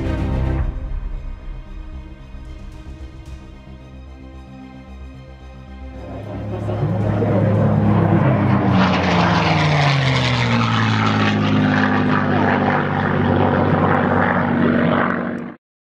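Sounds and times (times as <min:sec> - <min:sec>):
propeller aircraft engine passing: 0:00.0 - 0:15.6.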